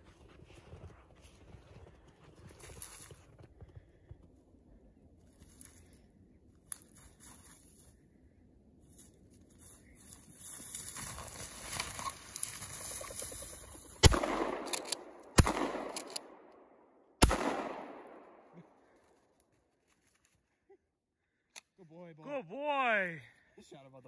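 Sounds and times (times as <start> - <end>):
rustling: 8.8 - 14.0
shotgun shots echoing: 14.0 - 18.7.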